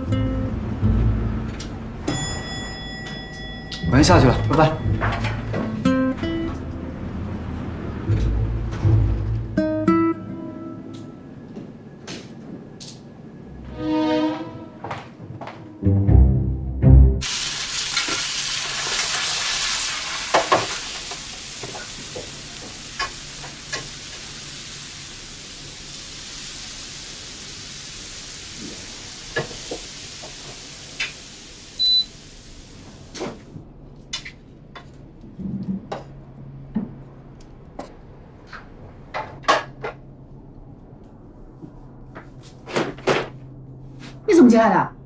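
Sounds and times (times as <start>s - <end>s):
food sizzling in a wok: 17.2s - 33.2s.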